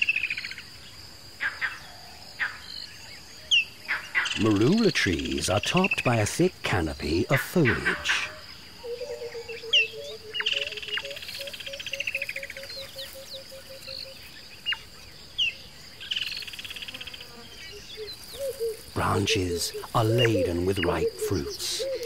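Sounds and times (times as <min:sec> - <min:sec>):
high insect whine: 0:00.0 - 0:22.0
bird repeating low note: 0:18.0 - 0:22.0.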